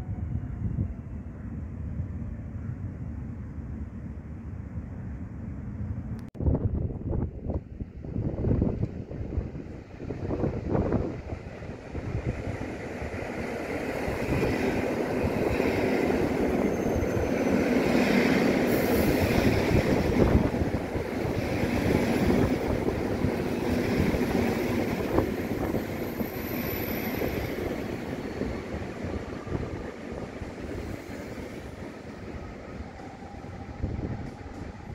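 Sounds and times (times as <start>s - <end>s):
train wheels rumbling on rails: 7.2s - 34.9s.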